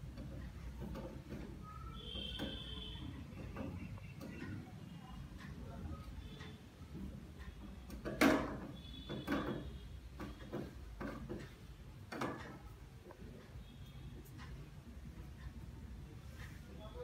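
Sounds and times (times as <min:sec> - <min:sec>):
chair knocking and rattling: 0:00.0 - 0:04.2, 0:07.8 - 0:12.7.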